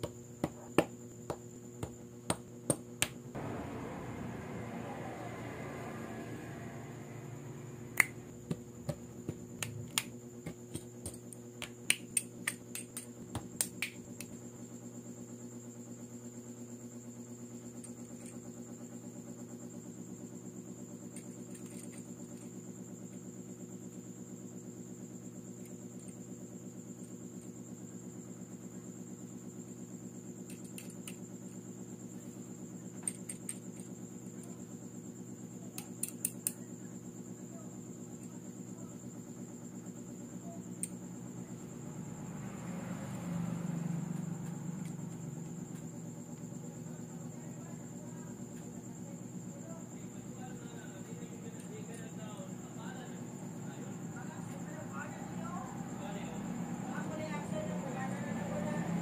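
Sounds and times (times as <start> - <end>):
steady low hum: 0.0 - 59.0
faint high whine: 3.3 - 10.8.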